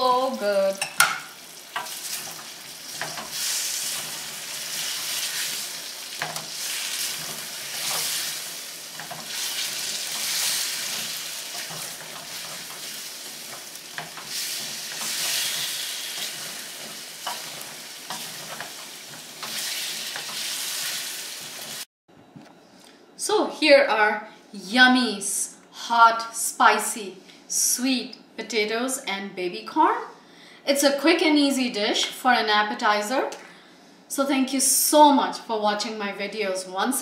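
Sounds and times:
potatoes sizzling in a pan: 0.0s - 21.9s.

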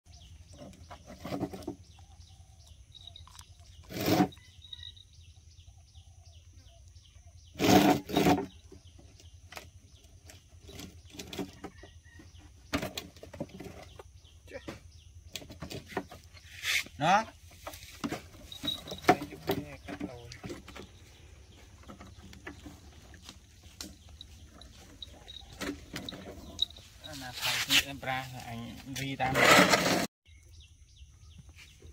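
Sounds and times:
high chirping: 0.2s - 7.5s, 15.9s - 29.1s.

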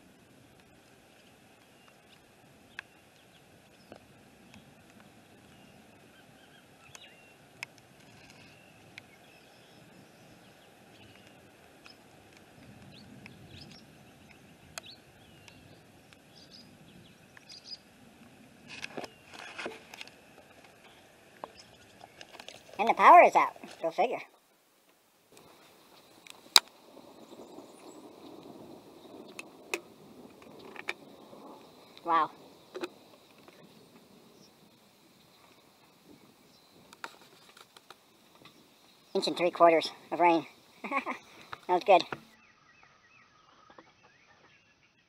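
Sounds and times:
bird chirps: 5.3s - 7.4s, 8.0s - 12.0s, 12.9s - 17.9s, 38.4s - 45.0s.

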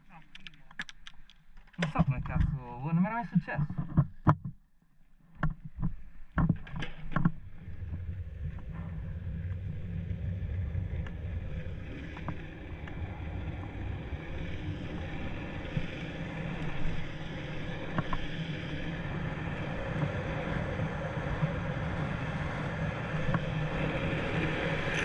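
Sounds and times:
skateboard wheels rolling on asphalt: 5.4s - 25.0s.

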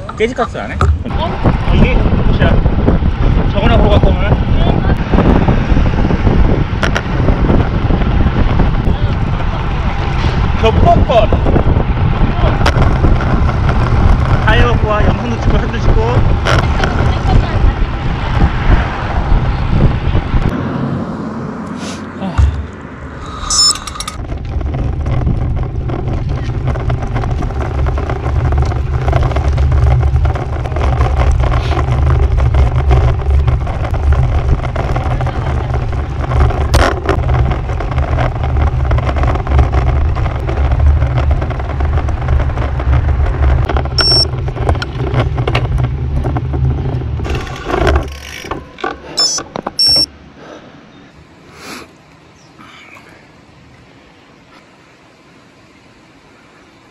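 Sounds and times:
wind buffeting microphone: 0.0s - 21.7s, 22.4s - 49.9s
short high chirps: 23.2s - 24.0s, 49.2s - 50.1s.

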